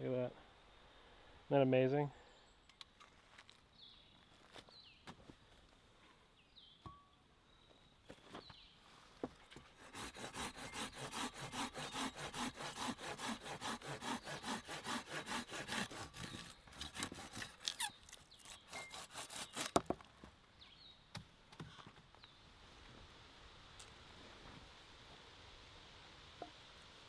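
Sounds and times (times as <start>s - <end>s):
hand saw cutting through branch: 9.7s - 20.0s.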